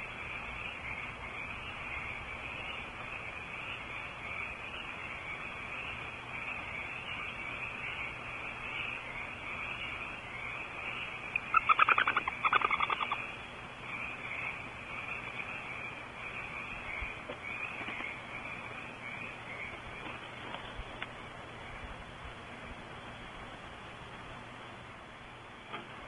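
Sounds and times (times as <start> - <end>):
steady hiss: 0.0 - 26.0
owl chittering: 1.7 - 19.8.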